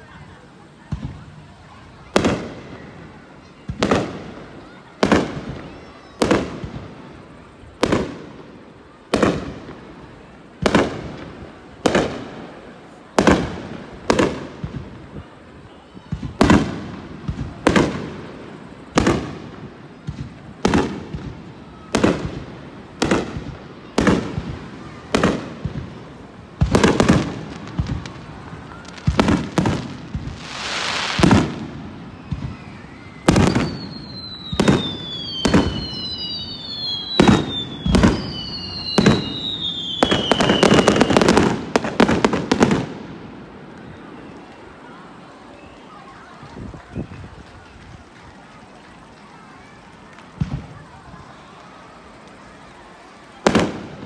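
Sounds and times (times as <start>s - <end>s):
falling firework whistles: 0.0s - 8.5s, 26.6s - 43.0s
firework hissing: 0.0s - 43.2s
fireworks bursting with bangs: 0.0s - 44.9s, 45.5s - 54.0s.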